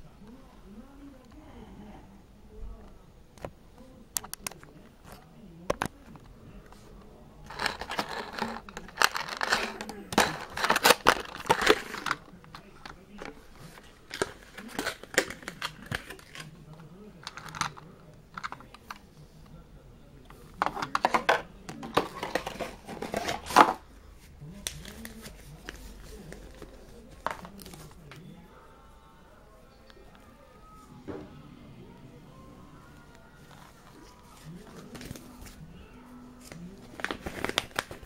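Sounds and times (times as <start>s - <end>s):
plastic packaging crinkling: 7.5s - 16.5s, 36.4s - 38.0s.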